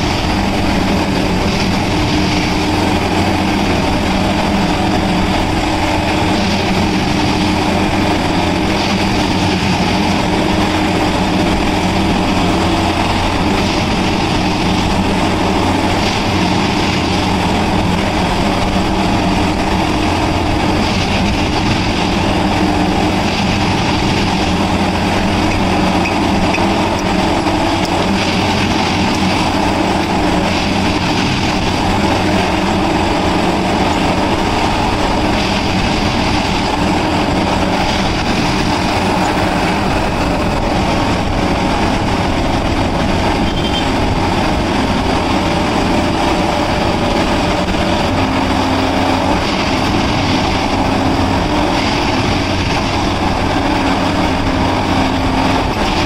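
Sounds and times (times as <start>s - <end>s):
tamping units packing ballast: 0.0s - 56.0s
track machine engine droning: 0.0s - 56.0s.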